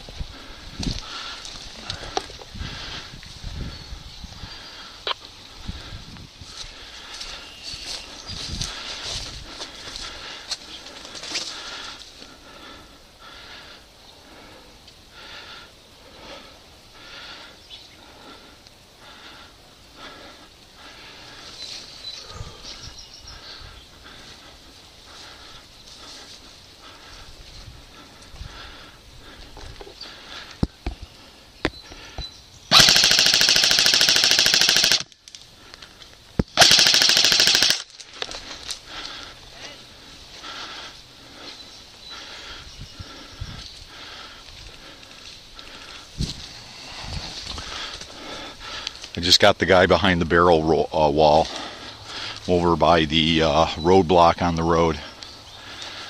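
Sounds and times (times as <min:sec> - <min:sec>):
person breathing hard: 0:00.0 - 0:49.2, 0:51.4 - 0:52.5, 0:55.1 - 0:56.0
airsoft rifle full-auto bursts: 0:32.7 - 0:35.1, 0:36.6 - 0:37.9.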